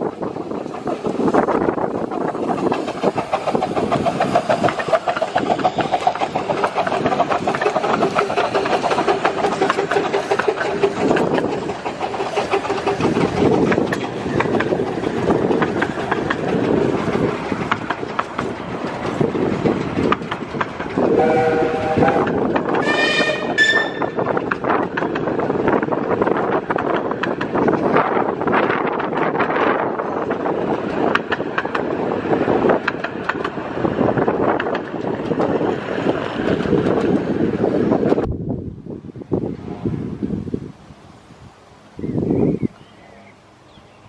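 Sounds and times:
steam locomotive chuffing: 0.0 - 38.3
wheels clattering over rail joints: 0.0 - 38.3
train whistle: 21.1 - 24.2.

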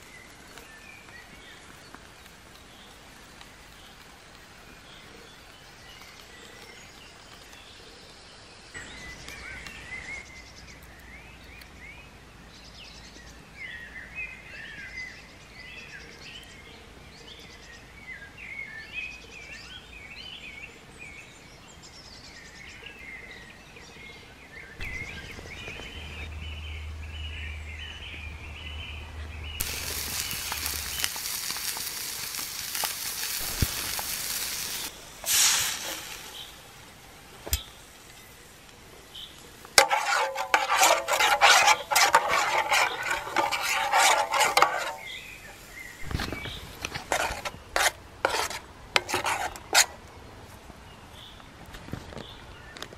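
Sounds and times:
birds chirping: 0.0 - 35.2, 35.9 - 47.9
frying pan sizzling: 29.6 - 38.7, 39.6 - 50.0.

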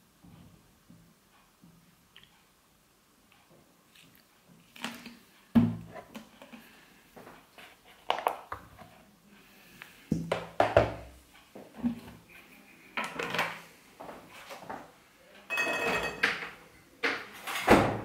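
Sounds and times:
plastic bowl knocking and clattering: 10.1 - 11.1.

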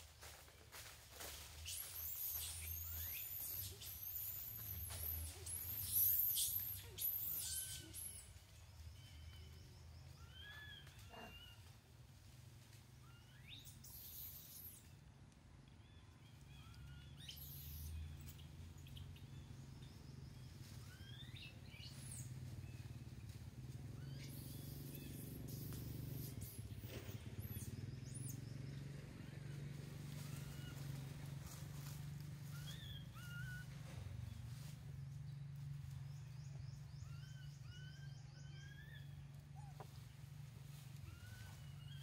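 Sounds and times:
bird chirps: 1.6 - 11.7, 13.0 - 15.0, 15.8 - 23.0, 32.4 - 34.4, 36.0 - 40.0.

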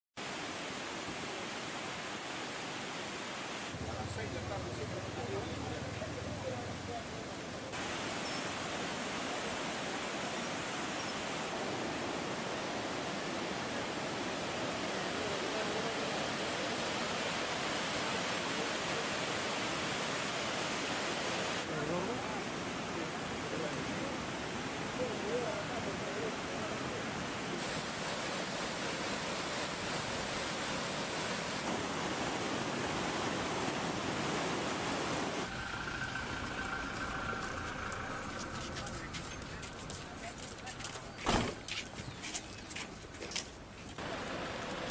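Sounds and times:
flooded river rushing: 0.2 - 41.8, 43.6 - 44.9
faint steady high tone: 35.4 - 40.2.

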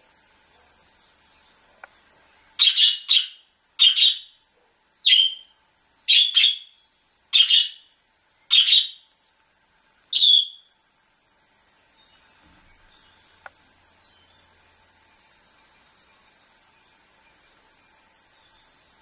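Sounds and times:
canary chirping: 2.6 - 4.4, 5.0 - 7.9, 8.5 - 9.1, 10.1 - 10.7.

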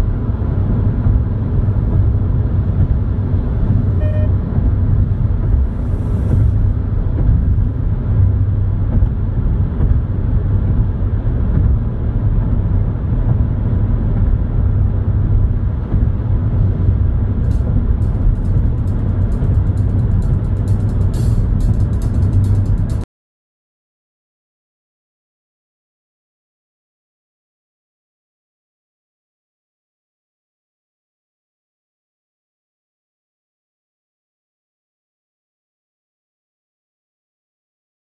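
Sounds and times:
car tyres and engine drone: 0.0 - 23.1.

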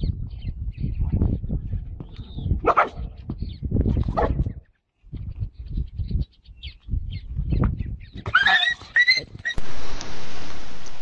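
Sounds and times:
dog barking: 2.6 - 3.1, 4.2 - 4.4.

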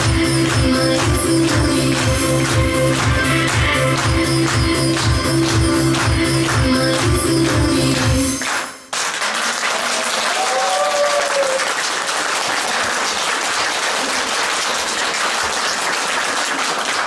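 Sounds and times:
audience applauding: 8.4 - 17.0
hands clapping close by: 8.4 - 17.0.

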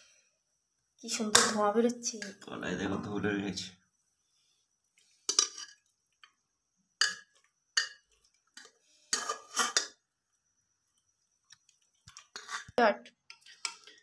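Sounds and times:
spoon clinking in metal pot: 7.0 - 8.1.

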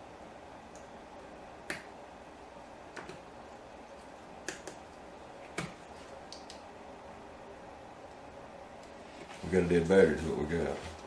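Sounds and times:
steady low hiss: 0.0 - 11.0
small sharp clicks: 6.3 - 6.6.

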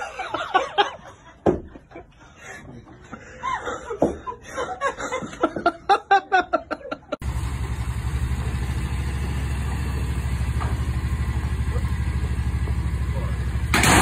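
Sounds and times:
people laughing: 0.0 - 7.2
engine idling with low chugging: 7.2 - 14.0.

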